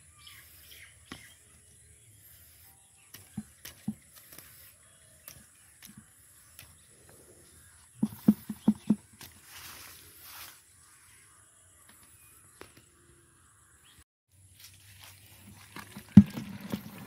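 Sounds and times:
knocks and thumps: 3.3s - 4.0s, 8.0s - 9.2s, 15.8s - 17.0s.

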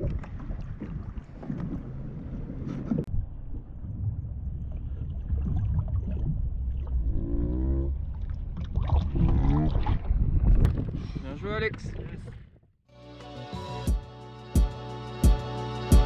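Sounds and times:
water splashing against a kayak: 0.0s - 7.1s, 7.9s - 11.1s
wind rumble on microphone: 0.0s - 12.6s.

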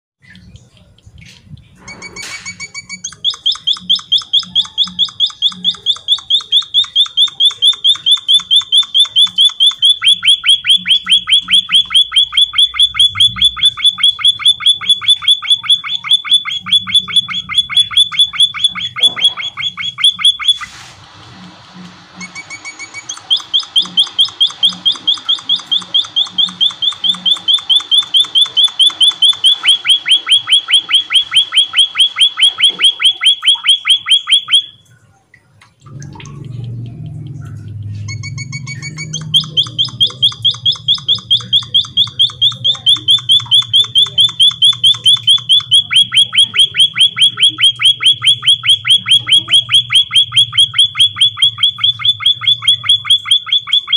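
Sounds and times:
bird chirping rapidly: 2.8s - 20.8s, 37.7s - 53.9s.

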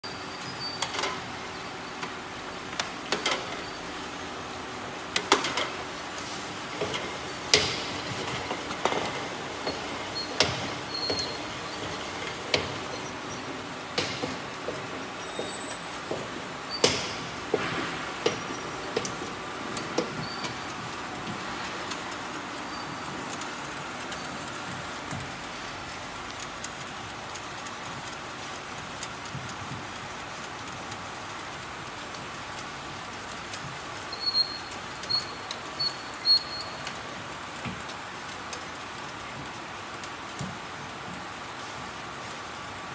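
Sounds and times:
machine hum: 1.1s - 26.1s
cans knocking on conveyor: 5.2s - 21.6s.

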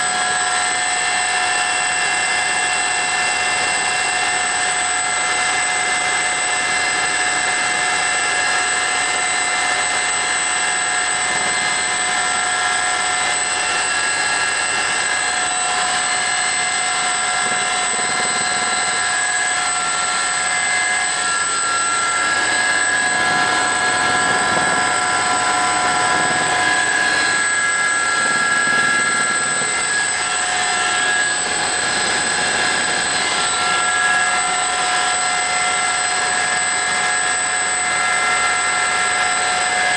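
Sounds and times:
constant rushing noise: 0.0s - 39.9s
helicopter turbine whine: 0.0s - 39.9s.

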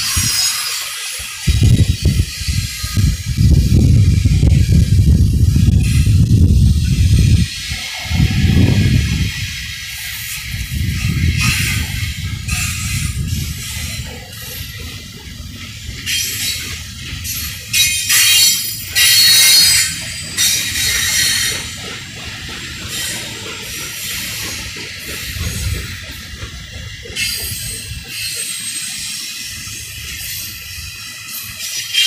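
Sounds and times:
freight train cars rumbling: 0.0s - 32.0s
high-pitched wheel screech: 7.2s - 14.1s, 17.3s - 21.8s.

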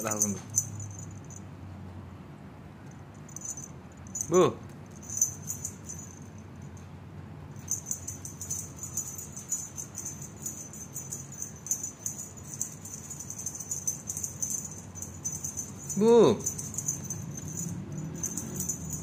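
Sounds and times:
cat toy jingling: 0.0s - 1.5s, 3.2s - 6.9s, 7.5s - 19.0s.

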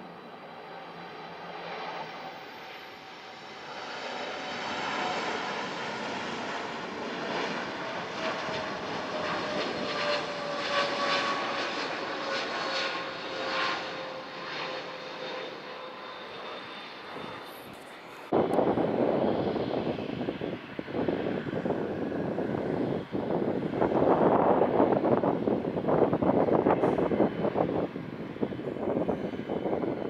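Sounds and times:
jet engine roar: 0.0s - 30.0s
jet engine whine: 0.0s - 30.0s.

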